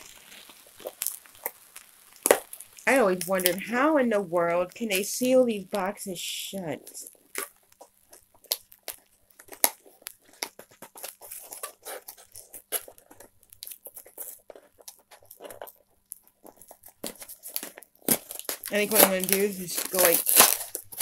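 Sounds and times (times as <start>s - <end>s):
cardboard box crackling: 7.0s - 21.0s.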